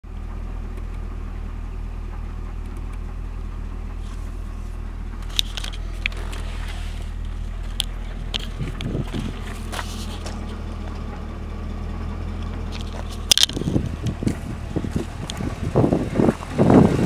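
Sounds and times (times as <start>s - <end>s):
car engine idling: 0.0s - 17.0s
sharp clicks: 2.6s - 3.1s.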